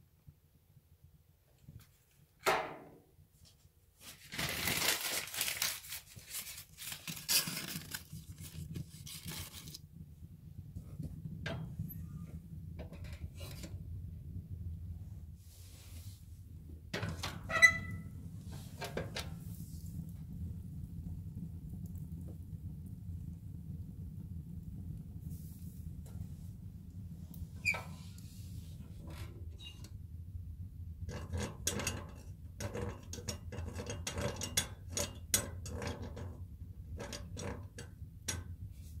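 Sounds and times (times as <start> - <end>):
metal boiler door scraping and clanking: 11.5 - 13.8, 16.9 - 19.8, 27.6 - 30.0, 31.0 - 39.0.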